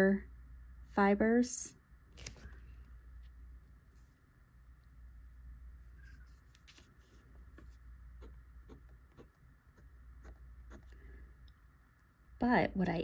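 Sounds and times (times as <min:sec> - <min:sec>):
pen nib scratching on paper: 0:06.0 - 0:11.1.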